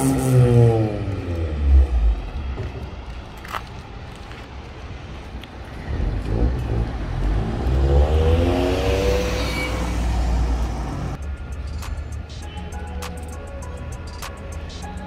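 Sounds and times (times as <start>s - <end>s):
car accelerating past: 5.9s - 11.2s
music: 11.2s - 15.0s.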